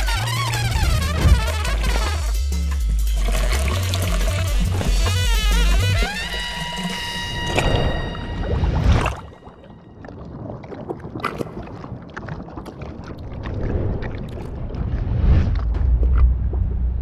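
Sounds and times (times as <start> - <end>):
low rumbling with crackles: 7.1 - 17.0.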